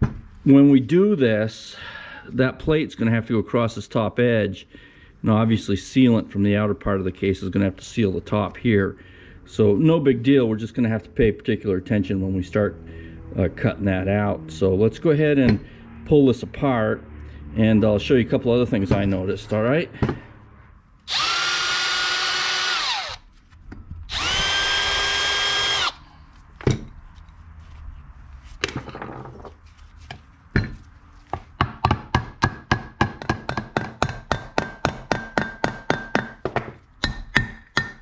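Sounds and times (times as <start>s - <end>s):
power drill whining: 21.1s - 23.2s, 24.1s - 26.1s.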